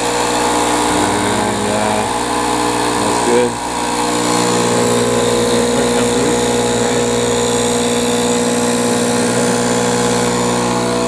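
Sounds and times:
machine humming: 0.0 - 11.0.

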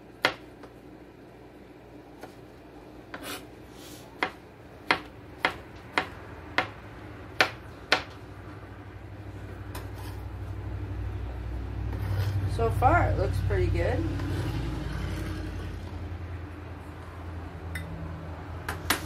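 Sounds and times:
knife chopping on plastic board: 0.2 - 0.7, 4.2 - 6.8, 7.4 - 8.2.

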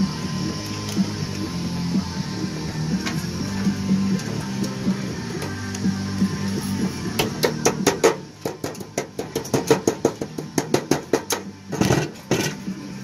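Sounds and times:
hammer tapping metal: 7.2 - 11.5.

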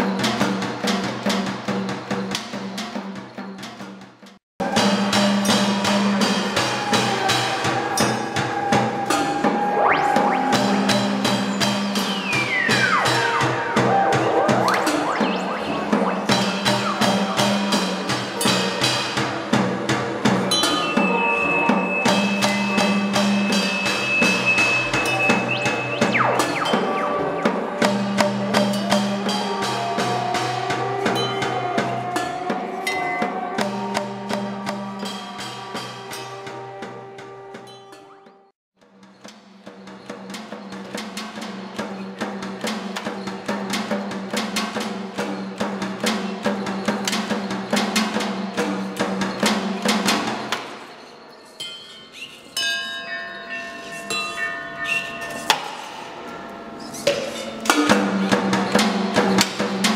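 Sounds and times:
mechanical beaters striking drums: 4.6 - 30.9
rising pitch glide: 9.6 - 11.4, 12.0 - 17.9, 23.7 - 28.7
low drone tones: 9.6 - 18.3, 21.4 - 30.5
sustained low tone: 23.8 - 28.4.

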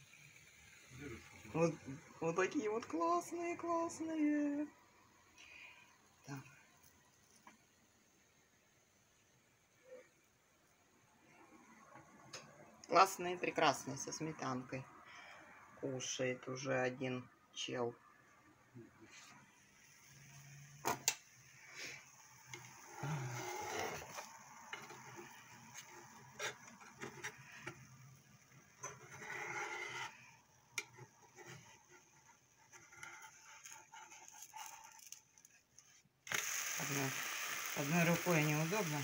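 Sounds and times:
batter sizzling in a hot pan: 36.4 - 39.0.

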